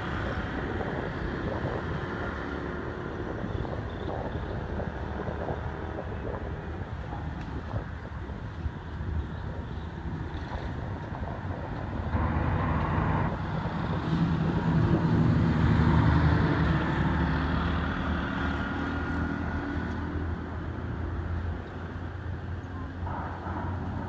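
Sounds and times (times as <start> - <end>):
low rumble: 21.8 - 24.0.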